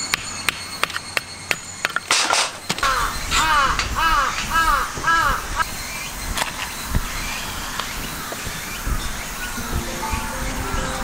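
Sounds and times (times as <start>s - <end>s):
crow cawing: 2.8s - 5.6s.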